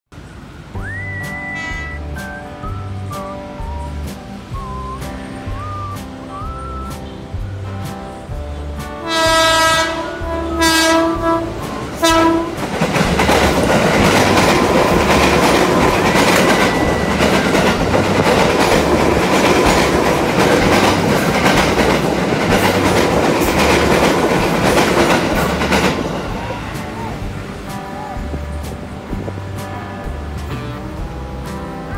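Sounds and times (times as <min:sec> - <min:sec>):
train wheels clattering on rails: 0:00.7 - 0:31.9
train horn blasts: 0:01.4 - 0:02.7, 0:09.0 - 0:12.8.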